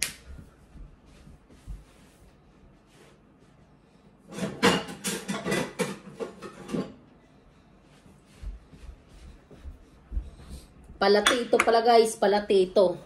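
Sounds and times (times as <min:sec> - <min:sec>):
dishes clattering: 0:04.3 - 0:07.0.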